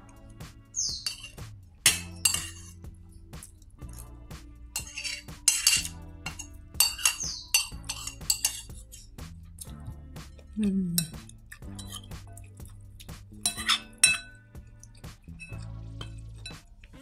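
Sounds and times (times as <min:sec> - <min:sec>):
background music: 0:00.0 - 0:17.0
cutlery clinking against dishes: 0:00.9 - 0:02.8, 0:04.8 - 0:08.9, 0:13.4 - 0:14.4.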